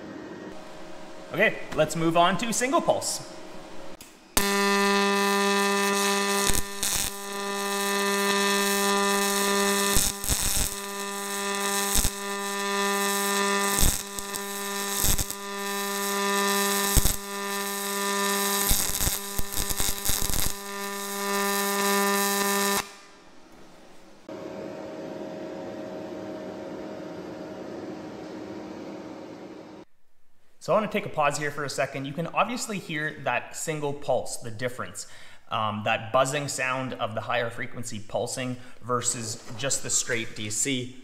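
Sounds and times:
steady hum: 0.0s - 29.9s
welding arc buzzing: 0.5s - 23.3s
spatter crackles: 4.4s - 23.0s.

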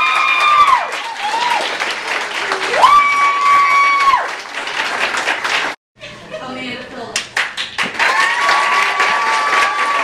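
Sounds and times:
high whoop of a cheer: 0.0s - 4.4s, 8.0s - 10.0s
audience applauding: 0.0s - 5.8s, 7.4s - 10.0s.

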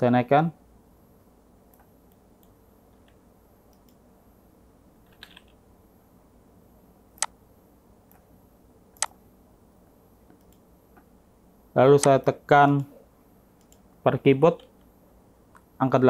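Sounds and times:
low room hum: 0.0s - 16.0s
computer mouse clicking: 1.7s - 4.0s, 5.0s - 5.6s, 10.3s - 11.1s, 13.6s - 13.9s.

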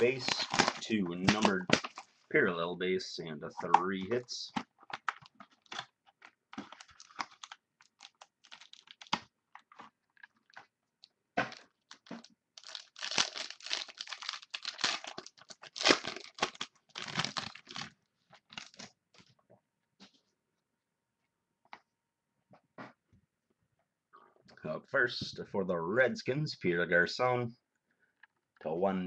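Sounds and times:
card pack wrapper crinkling and tearing: 0.0s - 2.1s, 4.6s - 10.7s, 11.4s - 19.0s.

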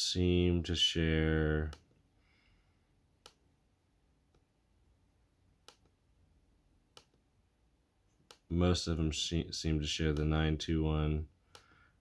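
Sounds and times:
computer mouse clicks: 5.6s - 6.0s.

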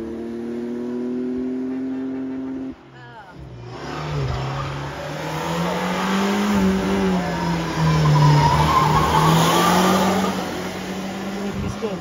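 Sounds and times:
car engine revving hard: 3.4s - 12.0s
tyres squealing: 3.7s - 12.0s.

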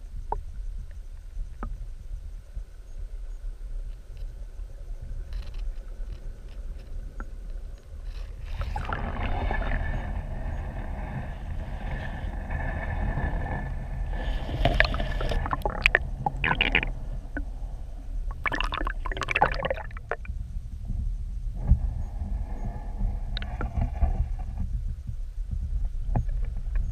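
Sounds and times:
muffled underwater creek flow: 0.1s - 26.9s
water gurgling: 8.4s - 10.9s, 14.0s - 17.6s, 18.3s - 20.3s.

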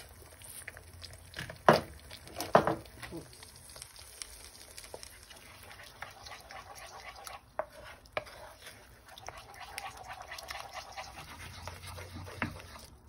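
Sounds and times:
eggs sizzling in a frying pan: 0.0s - 13.0s
wooden spoon scraping a pan: 4.8s - 13.0s.

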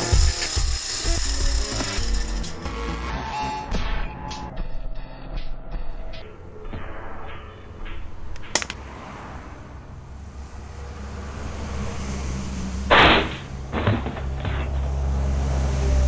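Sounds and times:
low traffic rumble: 5.6s - 16.0s.

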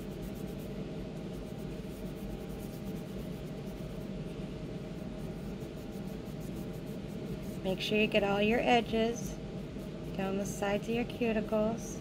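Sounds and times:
paper towel rubbing fingernails: 0.0s - 4.1s
low room hum: 0.0s - 12.0s.

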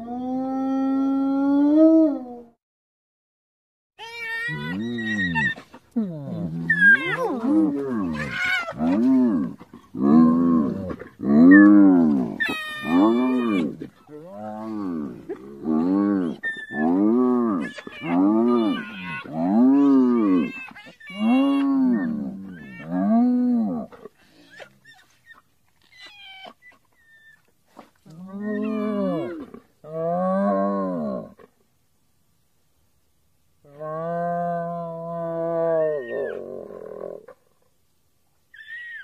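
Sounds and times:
hyena whooping: 6.4s - 9.4s, 11.4s - 15.0s, 16.1s - 23.1s.

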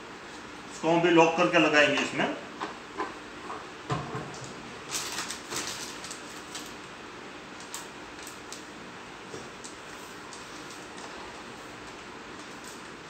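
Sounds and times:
plastic packaging rustling: 4.8s - 6.8s.

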